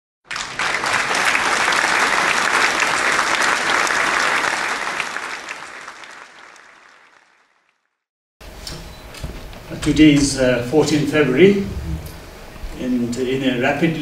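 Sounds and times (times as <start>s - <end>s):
audience applauding: 0.3s - 8.0s.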